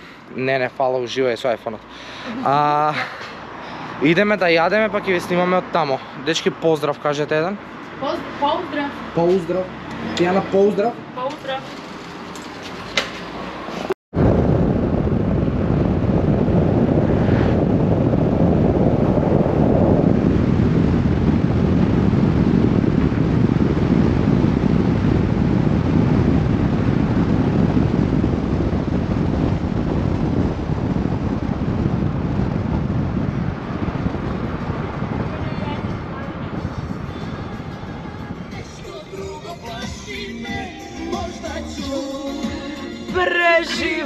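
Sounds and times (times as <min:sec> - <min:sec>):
road and tyre noise: 0:00.0 - 0:44.0
wind buffeting microphone: 0:14.1 - 0:39.9.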